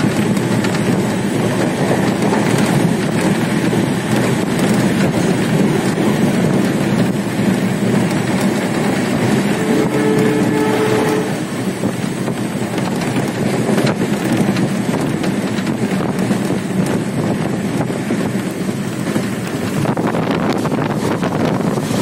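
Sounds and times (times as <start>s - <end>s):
train wheels rumbling on track: 0.0s - 22.0s
wind blowing on microphone: 0.0s - 22.0s.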